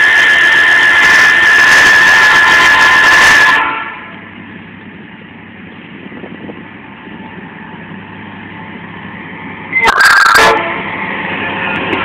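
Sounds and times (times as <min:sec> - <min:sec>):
locomotive horn blast: 0:00.0 - 0:04.2, 0:09.7 - 0:11.0
diesel locomotive rumble: 0:00.0 - 0:12.0.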